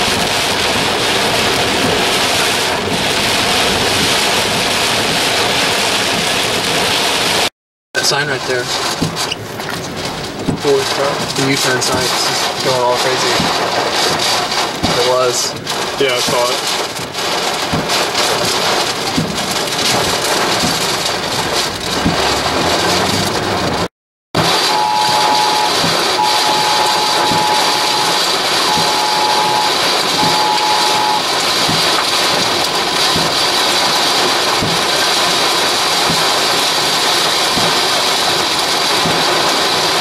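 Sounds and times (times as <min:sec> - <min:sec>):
heavy rain hitting a vehicle: 0:00.0 - 0:40.0
electronic beep tones: 0:24.4 - 0:31.3.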